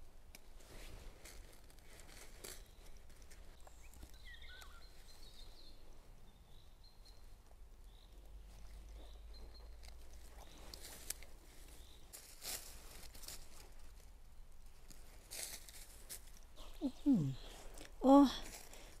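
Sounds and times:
dry leaves rustling and crunching: 1.1s - 4.2s, 10.4s - 14.0s, 14.9s - 16.4s
bird chirping: 3.6s - 11.0s, 11.6s - 12.2s.

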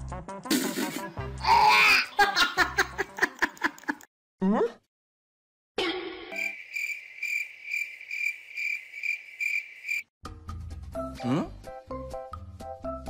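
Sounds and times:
insect trilling: 6.3s - 10.0s.

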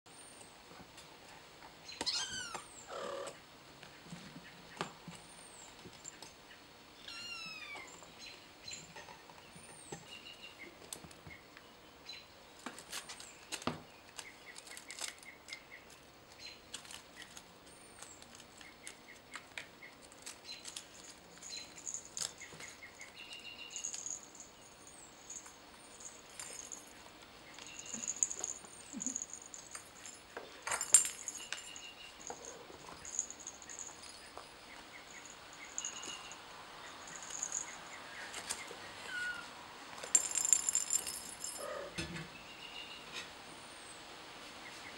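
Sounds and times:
kittens chirping: 2.0s - 3.4s, 7.0s - 8.1s, 27.5s - 30.2s, 31.2s - 39.6s.

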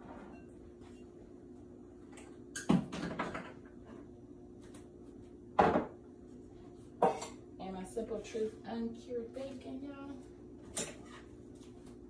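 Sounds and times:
loud knocks in kitchen: 2.7s - 3.6s, 5.6s - 6.0s.

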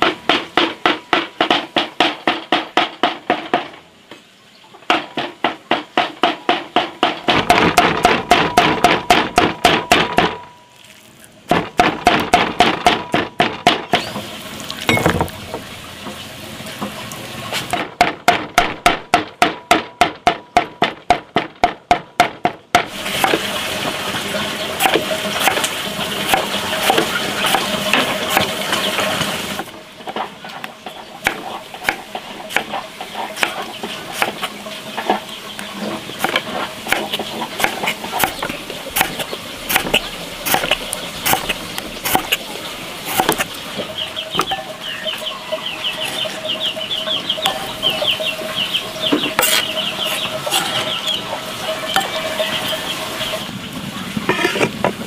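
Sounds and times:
cleaver chopping on board: 26.3s - 28.5s, 33.3s - 34.5s, 36.2s - 42.4s, 43.1s - 43.5s.

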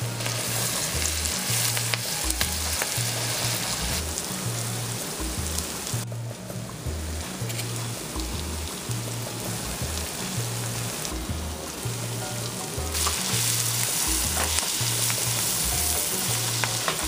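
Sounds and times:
vegetables sizzling in butter: 0.0s - 17.0s
spoon scraping a pan: 7.4s - 8.0s.

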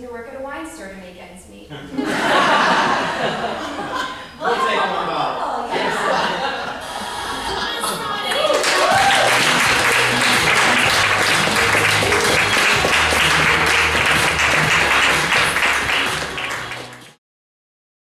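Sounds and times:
audience applauding: 6.3s - 17.2s
music with bass line: 8.9s - 17.2s.

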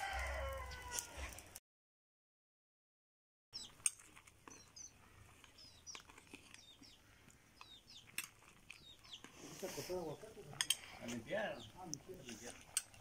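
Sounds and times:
small birds chirping: 3.6s - 13.0s.

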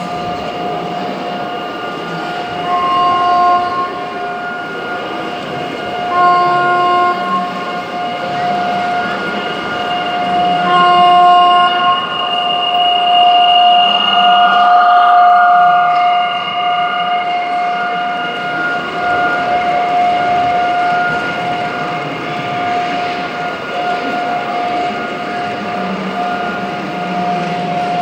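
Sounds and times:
electric locomotive whine: 0.0s - 28.0s
train horn: 2.5s - 22.8s.

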